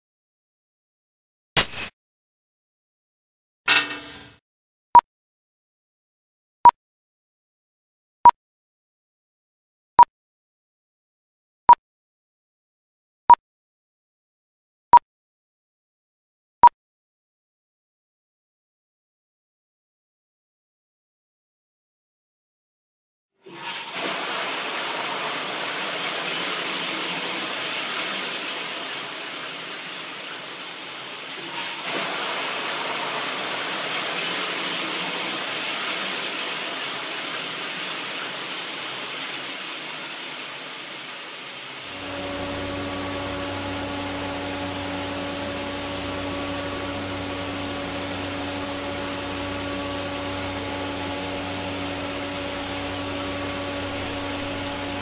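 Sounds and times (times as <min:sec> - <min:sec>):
water rushing into tank: 0:23.4 - 0:55.0
electric motor hum: 0:41.9 - 0:55.0.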